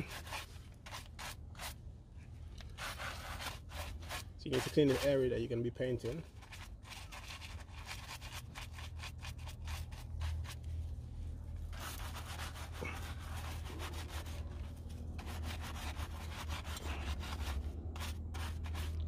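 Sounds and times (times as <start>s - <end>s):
brush scrubbing metal: 0.0s - 1.8s, 2.7s - 10.7s, 11.7s - 19.0s
low hum: 8.6s - 19.0s.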